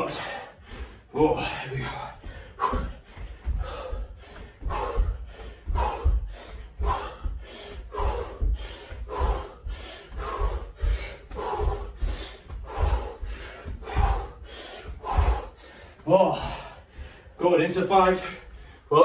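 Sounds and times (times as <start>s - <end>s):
forceful breathing: 0.0s - 19.0s.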